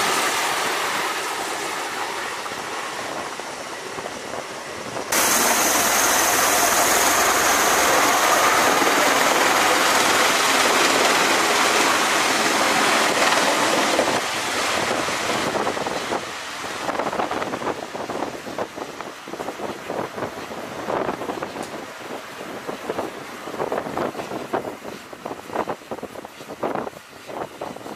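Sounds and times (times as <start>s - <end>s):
aircraft rotors rushing: 0.0s - 16.4s
wind buffeting microphone: 2.4s - 27.9s.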